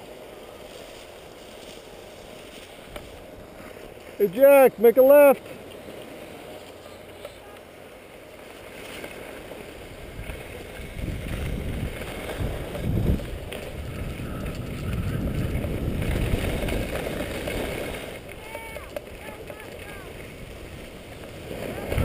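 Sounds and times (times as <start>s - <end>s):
skis scraping over snow: 0.0s - 22.0s
wind rushing over microphone: 9.8s - 22.0s.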